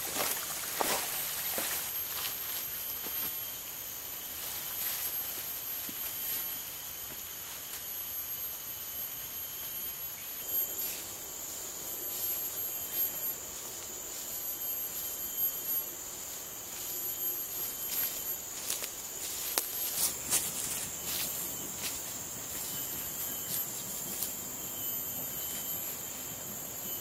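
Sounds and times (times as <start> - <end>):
footsteps through undergrowth: 0.0 - 3.4, 16.3 - 24.5
forest insects chorus: 0.0 - 27.0.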